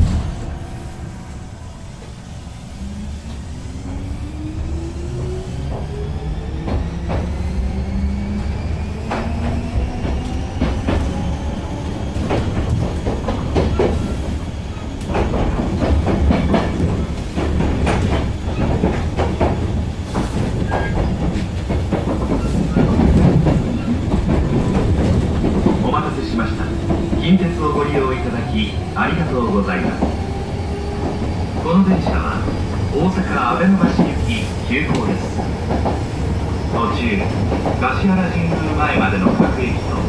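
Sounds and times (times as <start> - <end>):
train motor whine: 0.0 - 34.2
wheels clicking over rail joints: 15.0 - 28.3.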